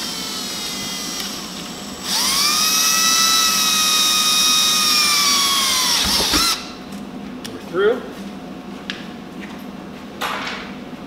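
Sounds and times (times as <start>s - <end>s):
cordless drill boring fiberglass: 0.0s - 6.7s.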